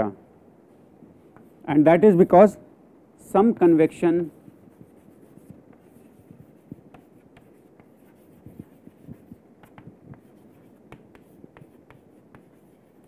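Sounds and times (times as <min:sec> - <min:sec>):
chalk writing on chalkboard: 0:04.5 - 0:13.0.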